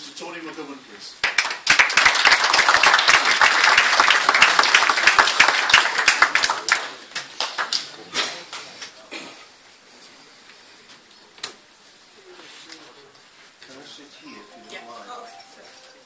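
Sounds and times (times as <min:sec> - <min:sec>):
audience applauding: 0:01.2 - 0:08.0.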